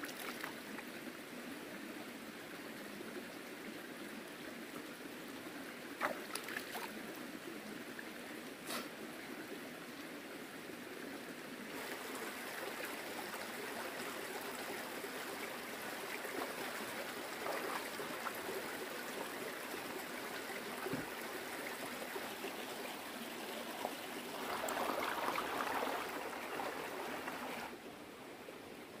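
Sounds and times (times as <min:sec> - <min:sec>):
flowing water rushing: 0:11.7 - 0:29.0.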